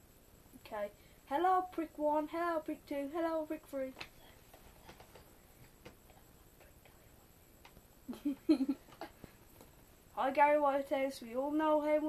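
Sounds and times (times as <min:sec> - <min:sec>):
boy's voice: 0:00.6 - 0:04.1, 0:10.2 - 0:12.0.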